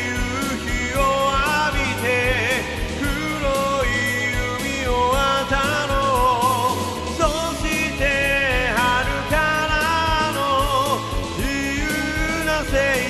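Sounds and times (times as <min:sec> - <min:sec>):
instrumental rock music: 0:00.0 - 0:13.0.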